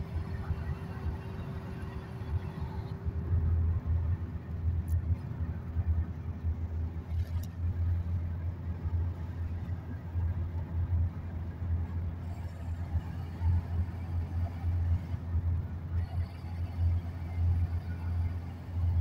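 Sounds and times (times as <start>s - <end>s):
car engine rumble: 0.0s - 19.0s
road noise: 0.0s - 19.0s.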